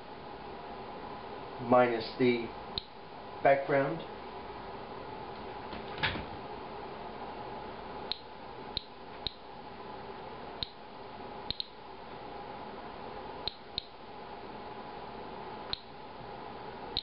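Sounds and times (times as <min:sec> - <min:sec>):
steady hum: 0:00.0 - 0:17.0
geiger counter clicking: 0:08.1 - 0:09.4, 0:10.6 - 0:10.8, 0:11.5 - 0:11.8, 0:13.4 - 0:14.0.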